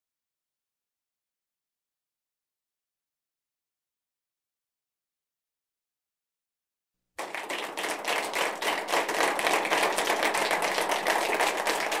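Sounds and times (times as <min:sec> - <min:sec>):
crowd applause: 0:07.2 - 0:12.0.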